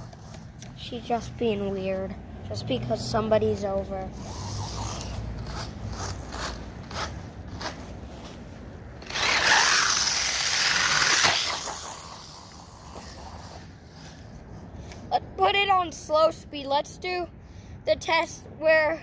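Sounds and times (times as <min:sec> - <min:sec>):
toy truck motor whirring: 0:04.0 - 0:07.9, 0:09.0 - 0:15.0.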